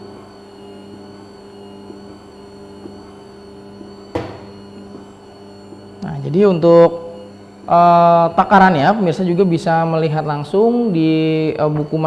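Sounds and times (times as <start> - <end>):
noodle maker motor humming: 0.0 - 12.0.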